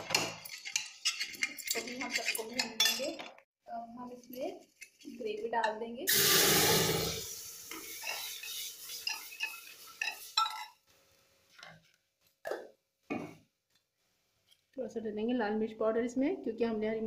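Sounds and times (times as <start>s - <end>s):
steel ladle scraping a pot: 0.0s - 3.2s, 6.1s - 10.8s
puree sizzling in hot oil: 6.1s - 10.9s.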